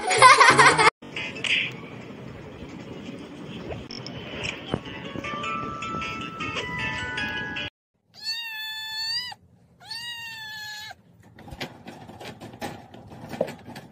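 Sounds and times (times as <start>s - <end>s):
music: 4.4s - 7.7s
kitten meowing: 8.2s - 11.0s.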